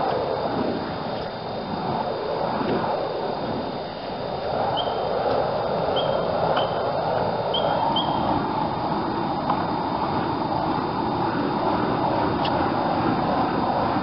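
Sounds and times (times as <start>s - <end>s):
steady rushing noise: 0.0s - 14.0s
bird chirping: 4.8s - 5.0s, 5.9s - 6.8s, 7.5s - 8.3s.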